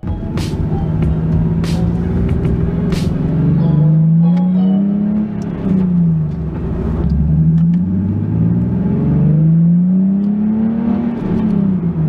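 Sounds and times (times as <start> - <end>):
car engine accelerating through gears: 0.0 - 12.0.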